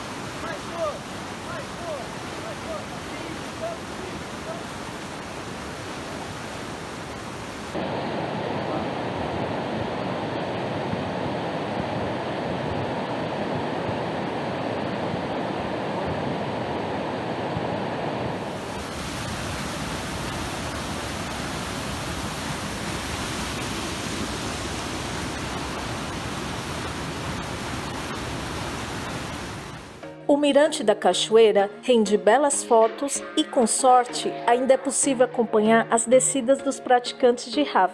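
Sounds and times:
river water rushing over rapids: 0.0 - 30.0.

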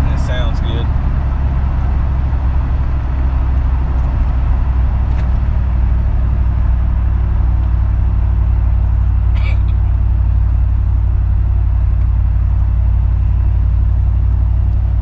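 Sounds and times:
truck engine droning: 0.0 - 15.0.

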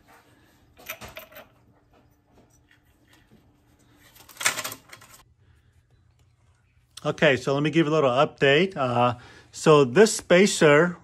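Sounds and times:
handling noise of parts: 0.0 - 5.3.

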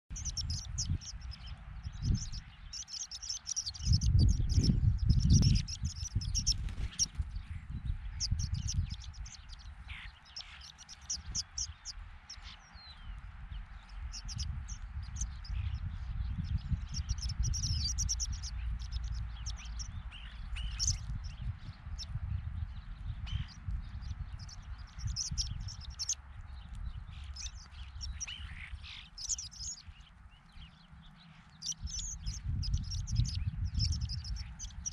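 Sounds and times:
birds chirping: 0.0 - 34.9
low rumble: 0.1 - 10.0, 10.7 - 30.6, 31.7 - 34.9.

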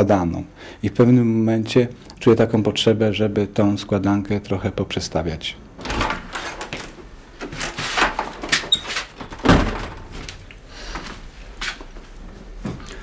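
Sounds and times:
door knocks and clicks: 8.5 - 10.2
door thudding shut: 9.1 - 10.3.

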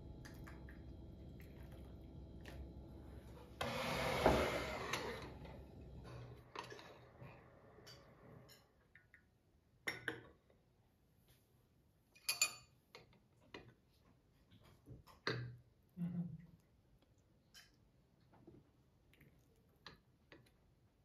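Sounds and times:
tableware clinking: 12.2 - 12.8.

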